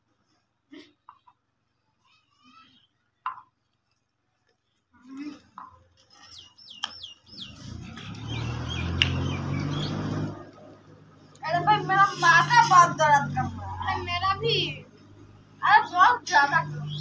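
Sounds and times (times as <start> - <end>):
birds chirping: 5.5 - 17.0.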